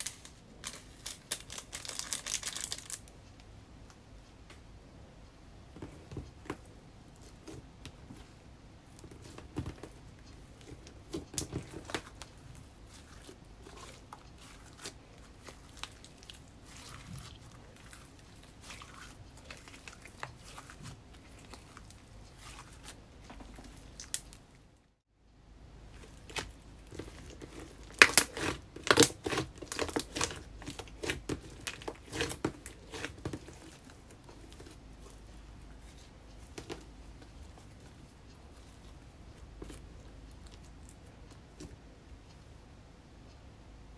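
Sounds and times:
slime clicking and crackling: 9.0s - 23.0s, 26.0s - 35.2s.

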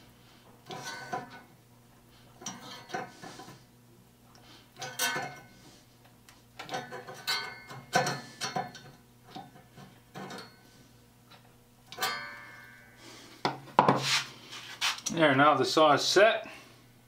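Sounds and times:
steel saw plate ringing: 12.0s - 13.0s.

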